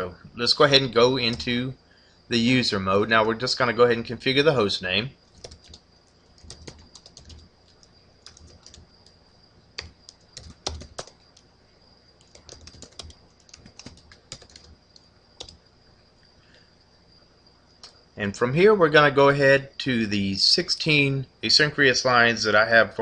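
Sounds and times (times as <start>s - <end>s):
keyboard typing: 1.1s - 1.5s, 5.3s - 5.8s, 6.4s - 9.2s, 9.8s - 11.4s, 12.2s - 15.6s.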